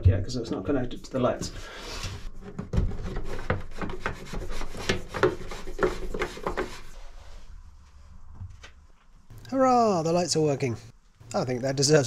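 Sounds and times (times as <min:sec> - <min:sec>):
hands scraping and knocking on wood: 0:02.0 - 0:06.9.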